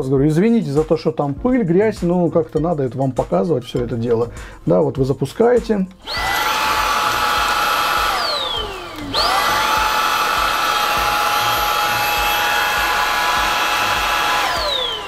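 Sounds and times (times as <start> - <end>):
stick vacuum motor whining: 6.0 - 15.0.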